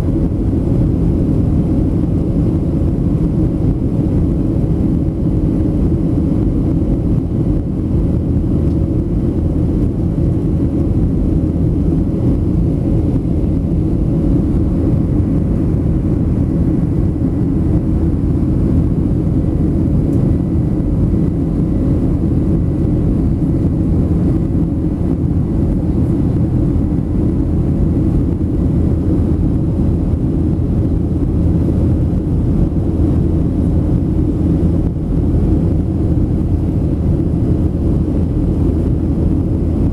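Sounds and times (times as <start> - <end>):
airplane cabin drone: 0.0 - 39.9
faint steady hum: 0.0 - 39.9.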